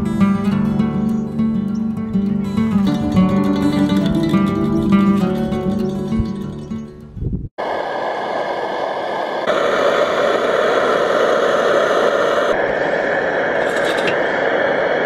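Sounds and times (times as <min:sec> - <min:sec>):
camping stove hissing: 0:07.6 - 0:15.0.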